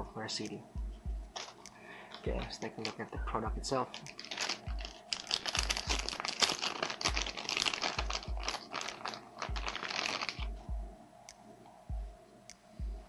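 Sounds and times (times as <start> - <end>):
plastic bag crinkling: 1.3 - 10.6.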